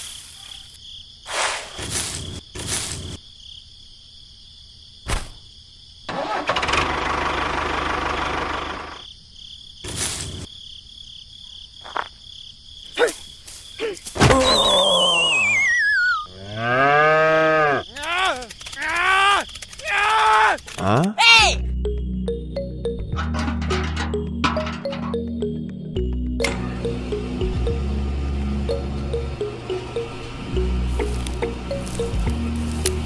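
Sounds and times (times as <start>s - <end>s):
insect chirring: 0.0s - 6.1s, 8.9s - 21.2s, 30.9s - 33.0s
wavering whistle sliding down: 14.4s - 16.3s.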